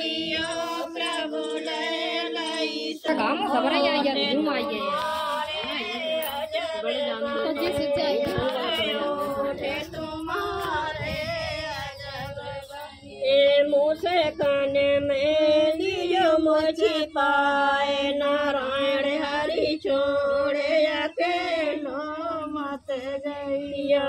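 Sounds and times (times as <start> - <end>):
women singing unaccompanied: 0.0 - 24.0.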